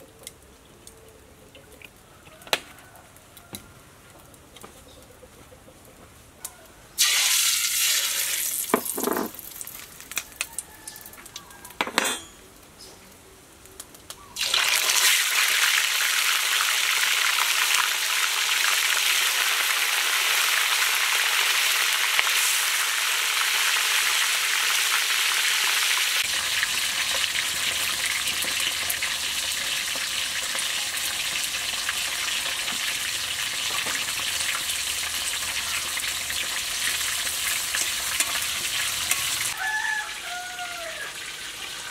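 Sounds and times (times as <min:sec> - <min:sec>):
fish sizzling in hot oil: 0:07.0 - 0:11.0, 0:14.4 - 0:41.9.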